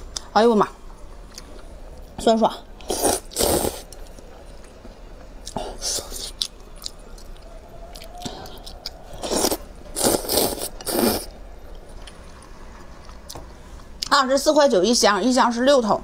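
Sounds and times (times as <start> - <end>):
loud noodle slurps: 2.8 - 3.9, 9.2 - 11.3
wet mouth clicks and chewing: 5.4 - 13.4.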